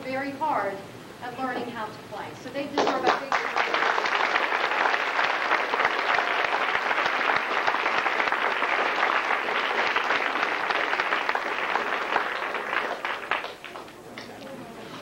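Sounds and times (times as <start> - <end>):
audience applauding: 2.8 - 14.4.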